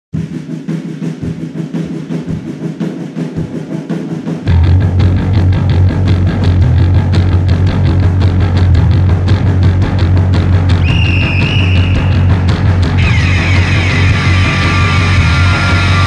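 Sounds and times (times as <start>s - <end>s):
fast drum beat: 0.2s - 16.0s
heavy bass: 3.4s - 16.0s
rock band music: 4.4s - 16.0s.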